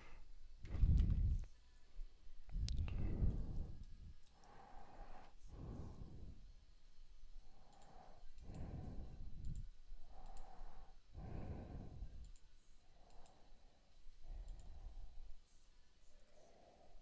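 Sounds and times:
slow breathing close to microphone: 2.5 - 6.6, 7.4 - 17.0.

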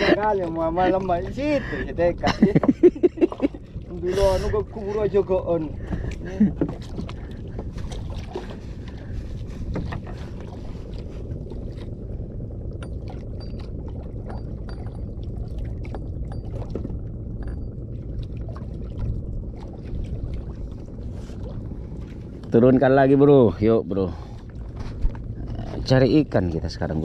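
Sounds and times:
boat engine rumble: 0.0 - 27.0.

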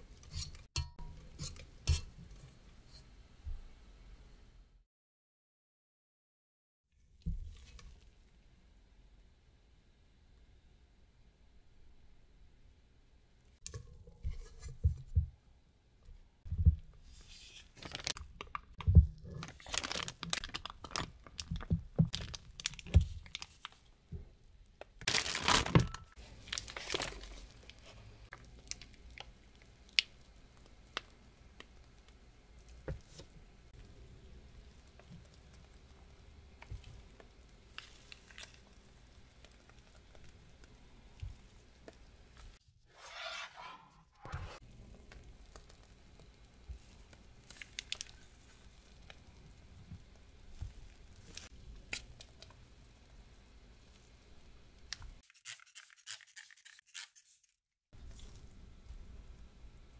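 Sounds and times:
plastic piping bag crinkling: 17.8 - 23.8, 24.9 - 32.1, 45.4 - 49.2
spatula scraping dough in metal bowl: 42.9 - 44.6.

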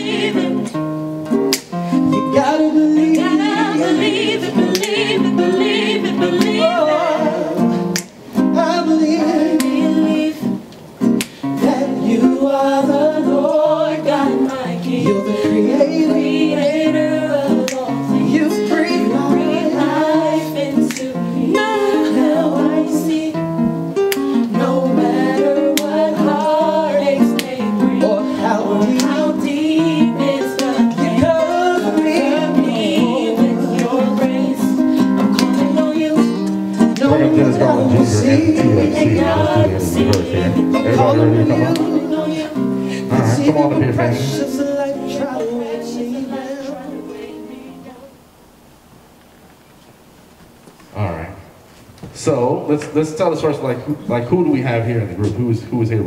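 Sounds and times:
guitar: 0.0 - 48.3
person singing: 2.0 - 10.6, 11.4 - 23.4, 24.1 - 48.2.

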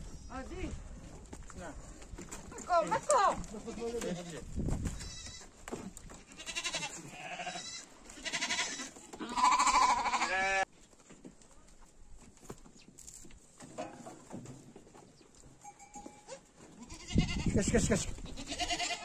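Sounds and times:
goats bleating: 3.7 - 5.5, 6.2 - 10.7, 16.7 - 17.6, 18.2 - 19.0.

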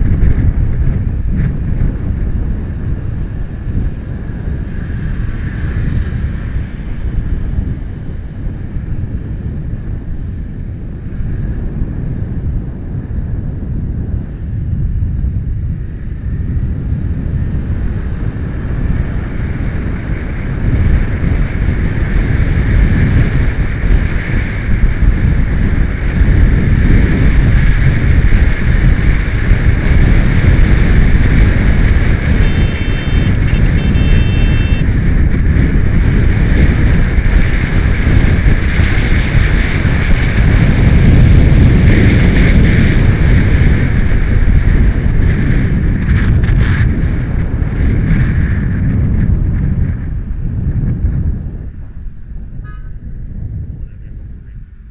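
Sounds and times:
motorcycle engine running: 0.0 - 53.3
wind over microphone: 0.0 - 54.9
short high-pitched tone: 32.4 - 34.8.

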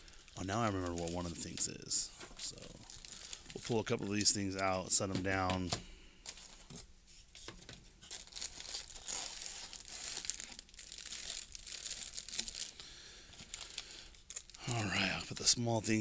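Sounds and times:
plastic packaging crinkling: 0.0 - 4.7, 8.0 - 16.0.

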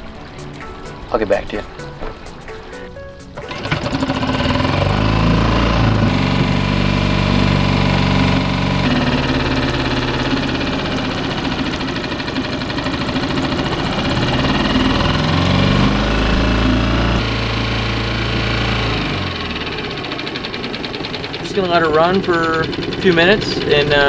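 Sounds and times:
outboard motor running: 0.0 - 24.0.

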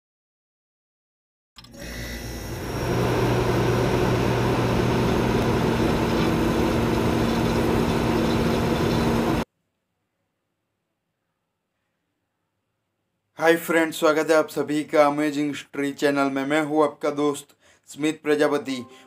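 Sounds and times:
low hum: 2.1 - 9.4.

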